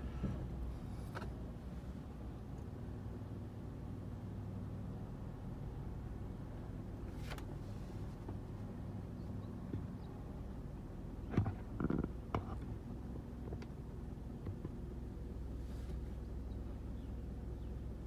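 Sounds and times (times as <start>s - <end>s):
car idling hum: 0.0s - 18.0s
muffled rustle: 15.5s - 16.3s.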